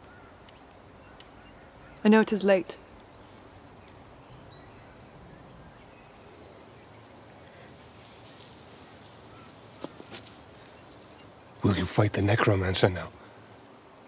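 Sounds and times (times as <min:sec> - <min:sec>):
faint high bird chirps: 0:00.0 - 0:07.7
faint outdoor air hiss: 0:00.0 - 0:14.0.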